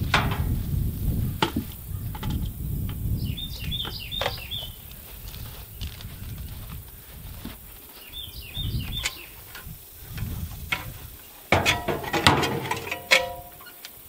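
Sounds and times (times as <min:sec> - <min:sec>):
metal ladder clattering: 0:00.0 - 0:00.6, 0:11.5 - 0:13.8
bird chirping: 0:01.0 - 0:06.8, 0:07.9 - 0:09.7.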